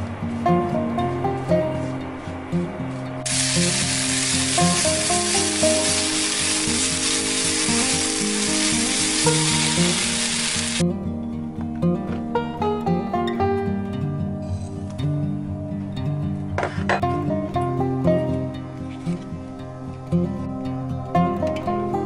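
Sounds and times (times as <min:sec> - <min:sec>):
soft music with plucked notes: 0:00.0 - 0:22.0
onions sizzling in oil: 0:03.2 - 0:10.8.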